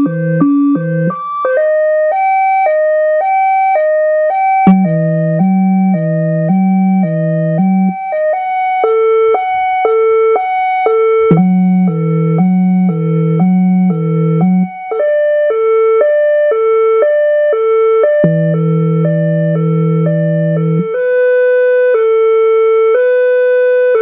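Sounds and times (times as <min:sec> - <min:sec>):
deep low-frequency siren rumble: 0:00.0 - 0:24.0
two-tone hi-lo electronic siren: 0:00.0 - 0:24.0.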